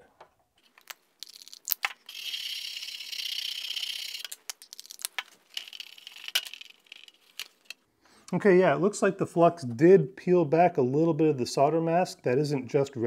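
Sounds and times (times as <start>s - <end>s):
brush and bottle clicks: 0.6s - 7.8s.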